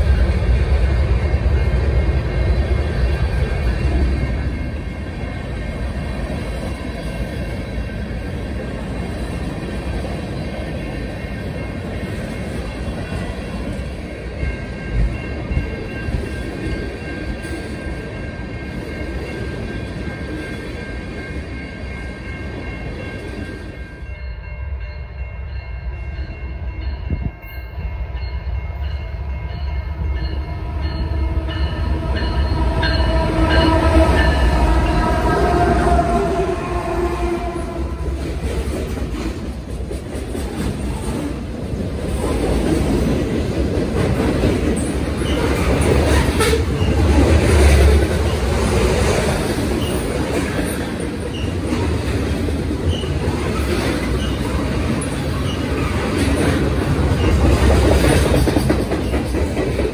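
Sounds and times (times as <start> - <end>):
train wheels rumbling on rails: 0.0 - 59.9
locomotive horn: 31.3 - 38.4.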